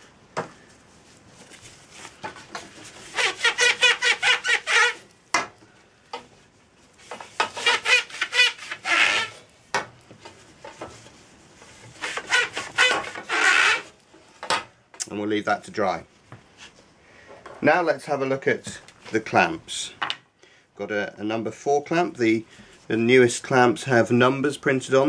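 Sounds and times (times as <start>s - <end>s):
wipe squeaking on pole: 3.1s - 5.0s, 7.5s - 9.4s, 12.0s - 13.9s.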